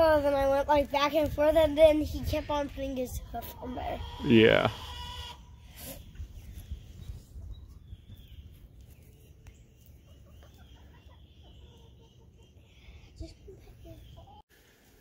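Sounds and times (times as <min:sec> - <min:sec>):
chickens clucking: 0:01.8 - 0:06.1, 0:09.8 - 0:14.4.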